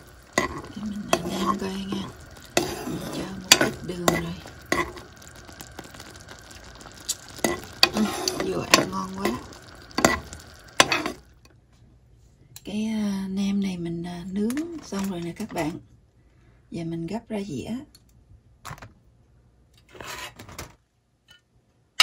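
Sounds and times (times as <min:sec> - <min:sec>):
spoon scraping pan: 0:00.0 - 0:11.3
sauce bubbling and sizzling: 0:00.0 - 0:11.4
spoon tapping pan: 0:00.3 - 0:05.1, 0:07.0 - 0:11.2.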